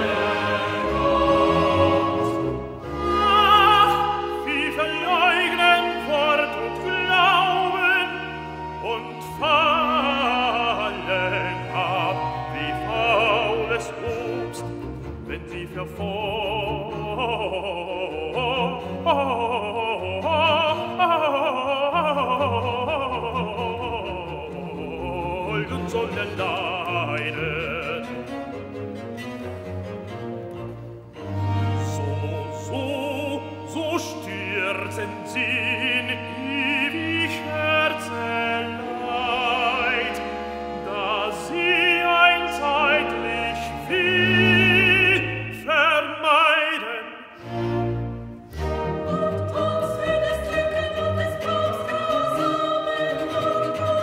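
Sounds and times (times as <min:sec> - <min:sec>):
tenor singing: 0:00.0 - 0:54.0.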